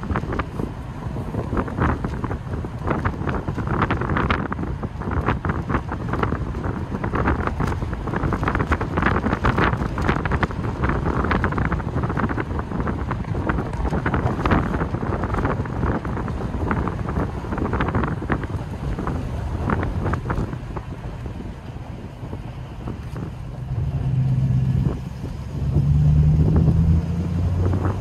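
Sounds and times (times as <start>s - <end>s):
car engine running low: 0.0s - 28.0s
wind buffeting microphone: 0.0s - 28.0s.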